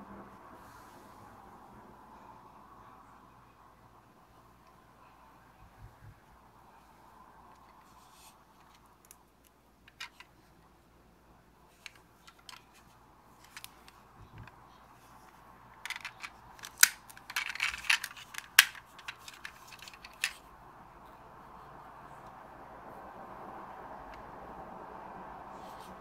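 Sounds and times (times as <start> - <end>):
toy truck clicks and taps: 9.9 - 10.3, 15.8 - 20.4.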